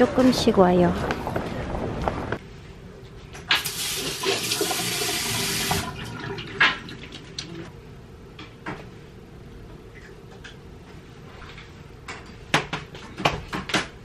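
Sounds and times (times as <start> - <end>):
water running from a tap: 3.6 - 7.2.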